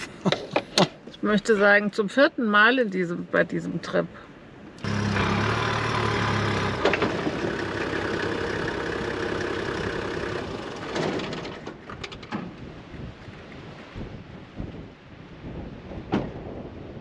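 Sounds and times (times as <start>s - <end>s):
diesel engine droning: 4.8s - 11.9s.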